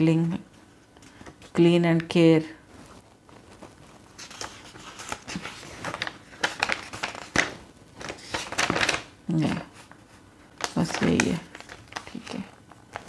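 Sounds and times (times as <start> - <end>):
paper pages rustling: 2.6 - 13.0.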